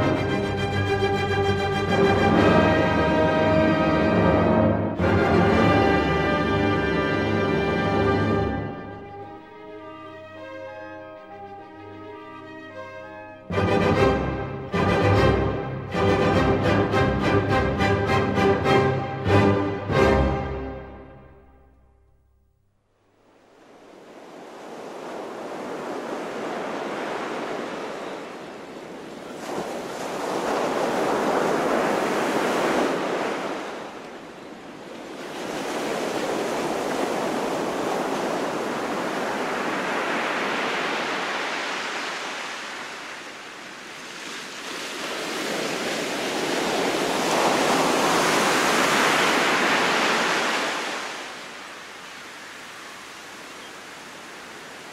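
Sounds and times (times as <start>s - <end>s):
waves breaking on beach: 23.0s - 54.9s.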